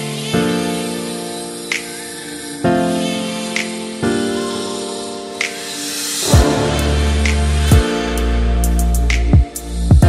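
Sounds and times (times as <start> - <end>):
held music chords: 2.6 - 10.0.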